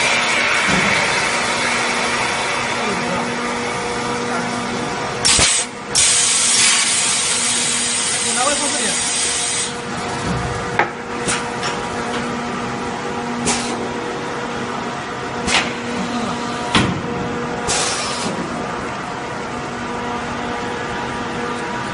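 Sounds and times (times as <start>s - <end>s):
steady machine hum: 0.0s - 21.9s
compressed air hissing: 5.3s - 8.3s, 8.9s - 9.8s, 13.4s - 13.8s, 17.7s - 18.3s.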